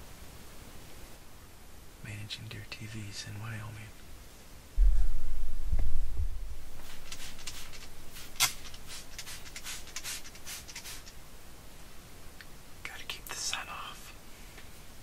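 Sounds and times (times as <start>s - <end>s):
heavy low rumble: 4.8s - 7.1s.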